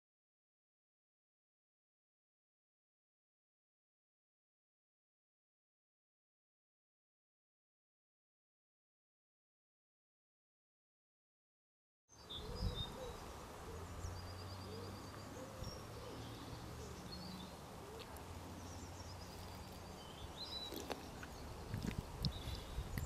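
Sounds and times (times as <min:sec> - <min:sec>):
small birds singing and chirping: 0:12.1 - 0:23.0.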